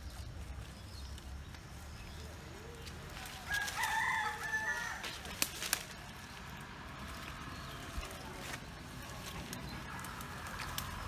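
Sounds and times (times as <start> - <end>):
rooster crowing: 3.4 - 5.2.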